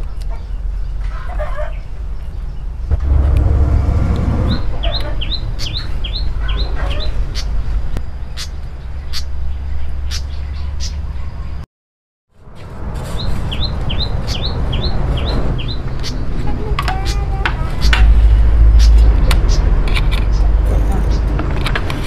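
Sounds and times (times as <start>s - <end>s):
small birds chirping: 0.0s - 2.9s, 4.6s - 11.6s, 13.1s - 21.4s
chicken clucking: 0.2s - 1.8s
low rumble: 1.9s - 8.1s, 17.4s - 21.9s.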